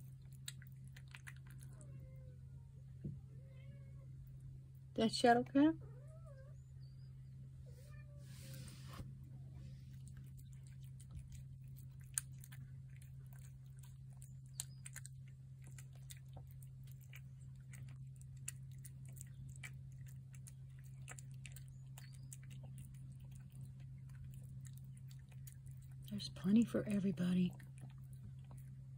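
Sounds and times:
cat chewing and lip-smacking: 0.0 - 2.3, 9.7 - 28.9
steady low hum: 0.0 - 28.9.

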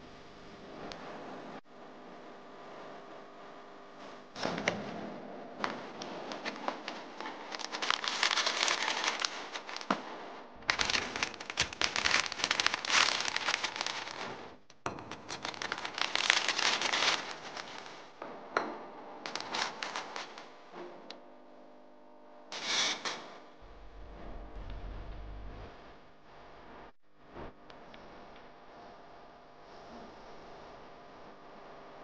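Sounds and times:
plastic bag and cardboard crinkling: 5.6 - 18.2, 19.3 - 20.5.

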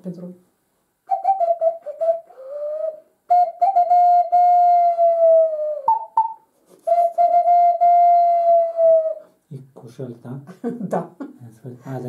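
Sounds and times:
clay whistle notes: 1.1 - 9.3.

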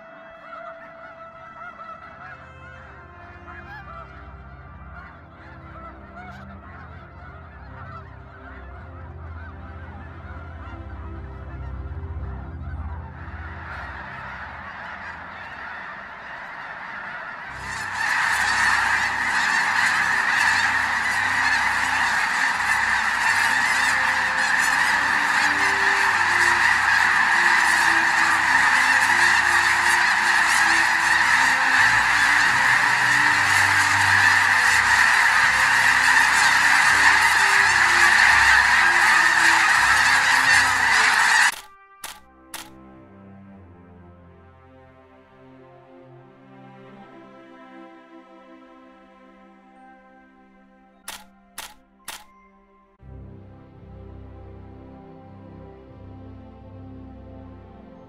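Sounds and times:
geese honking: 0.0 - 42.7, 50.8 - 52.2.

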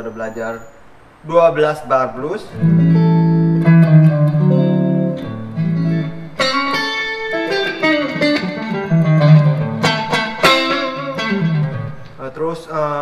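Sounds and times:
electric guitar playing blues: 2.5 - 12.3.

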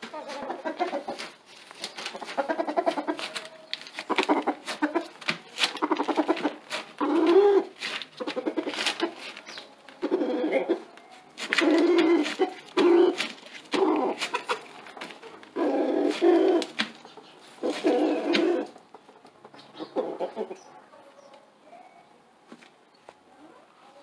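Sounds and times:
rooster clucking: 0.0 - 20.8.

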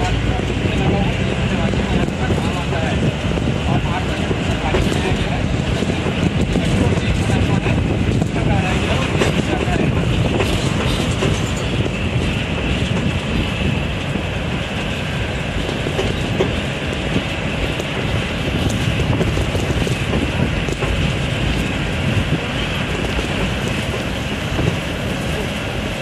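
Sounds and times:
vehicle body rattling: 0.0 - 14.1
vehicle engine and road rumble: 0.0 - 26.0.

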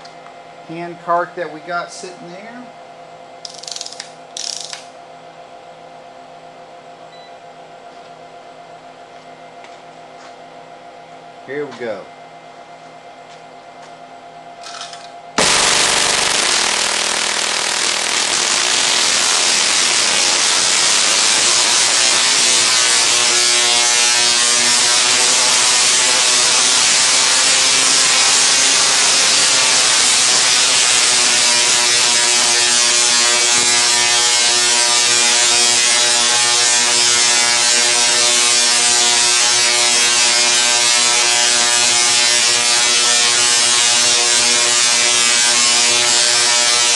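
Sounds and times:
multi-tone hum: 15.0 - 46.9
tesla coil sparks buzzing: 15.4 - 46.9.

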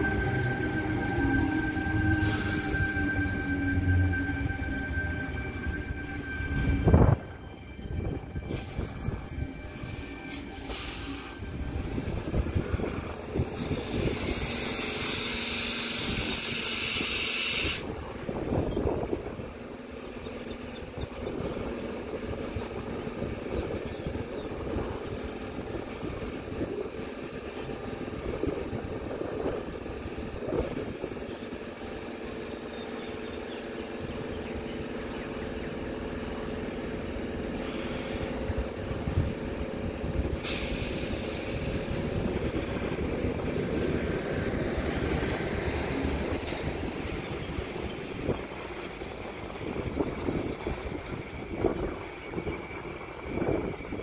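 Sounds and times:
train equipment humming: 0.0 - 54.0
compressed air brake hiss: 2.2 - 3.2, 8.5 - 9.3, 9.9 - 12.0, 13.6 - 18.0, 37.5 - 38.4, 40.4 - 42.3.

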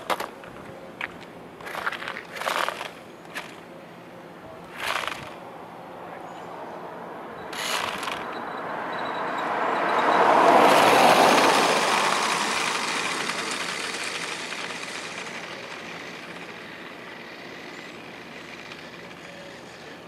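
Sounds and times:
toy remote-control car driving: 1.6 - 3.7, 4.7 - 5.4, 7.5 - 20.0.

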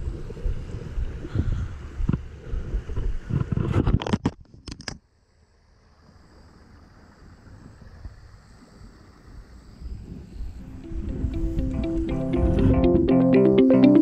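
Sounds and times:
wind buffeting microphone: 0.0 - 4.1.

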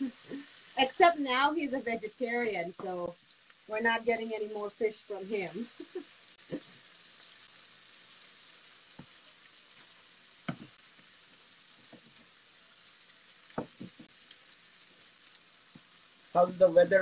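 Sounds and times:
fish sizzling in a skillet: 0.0 - 17.0
soft taps: 10.5 - 10.8.

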